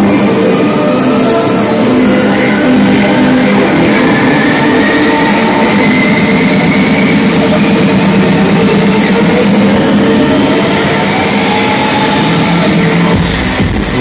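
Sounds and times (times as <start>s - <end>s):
loud electronic dance music: 0.0s - 14.0s.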